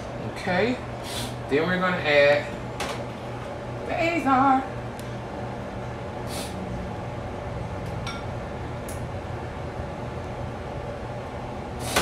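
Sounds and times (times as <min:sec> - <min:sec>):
steady low hum: 0:00.0 - 0:12.0
dishware clink: 0:08.1 - 0:08.3.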